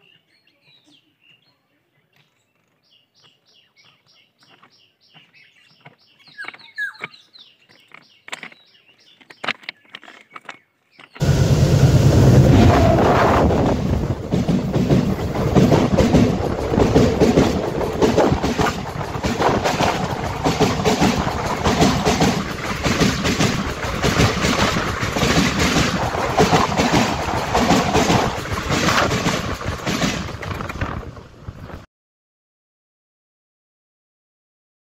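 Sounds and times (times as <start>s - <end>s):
wheels clattering on track: 7.7s - 31.8s
train passing overhead rushing: 11.2s - 31.8s.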